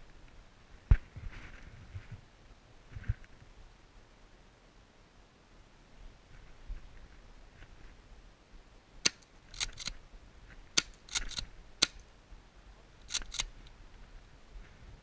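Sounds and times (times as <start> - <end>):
shotgun pump racking clicks: 9.1 - 9.9, 10.8 - 12.0, 13.0 - 13.6.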